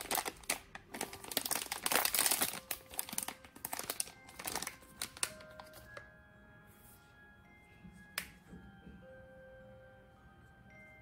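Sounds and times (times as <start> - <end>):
foil pouch crinkling: 0.0 - 6.0.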